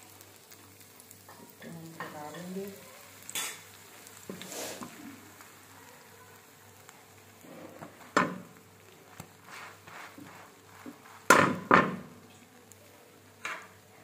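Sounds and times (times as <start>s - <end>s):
kitchen utensils knocking and clattering: 11.3s - 12.0s.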